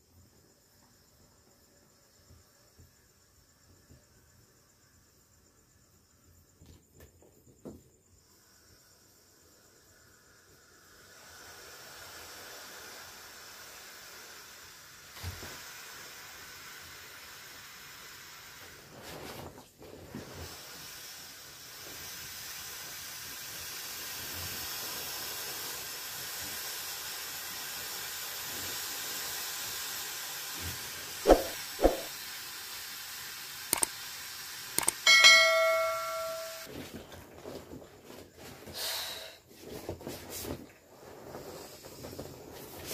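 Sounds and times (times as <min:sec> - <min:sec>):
air hissing out of valve: 0:08.1 - 0:19.0, 0:20.2 - 0:36.7.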